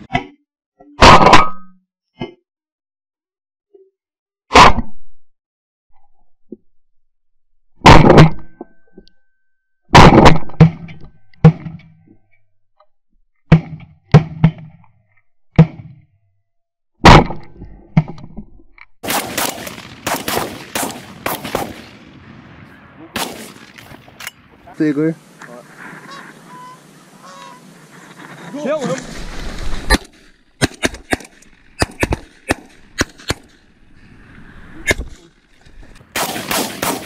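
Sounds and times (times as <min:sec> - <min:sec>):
shotgun shots: 0:19.0 - 0:24.5, 0:29.1 - 0:33.6, 0:36.1 - 0:37.0.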